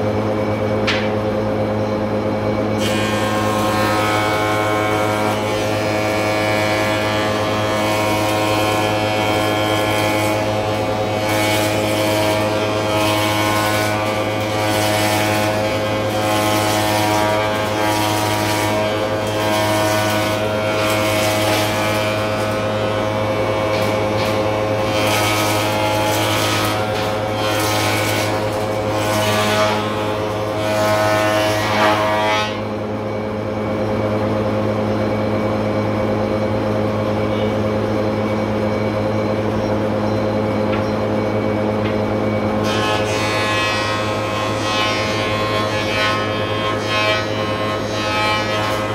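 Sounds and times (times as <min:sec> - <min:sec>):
spindle moulder machine hum: 0:00.0 - 0:48.9
cutter cutting timber: 0:02.8 - 0:30.7.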